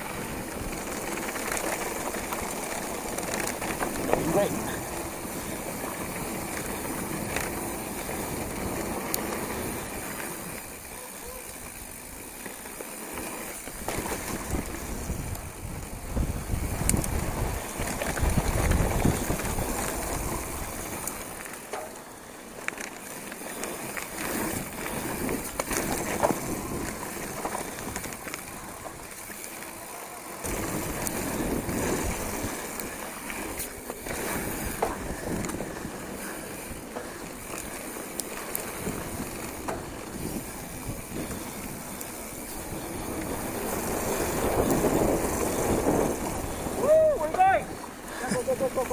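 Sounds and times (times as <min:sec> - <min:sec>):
tyres rolling over dirt and rocks: 0:00.0 - 0:48.9
wind rushing over microphone: 0:14.2 - 0:21.1, 0:38.7 - 0:47.9.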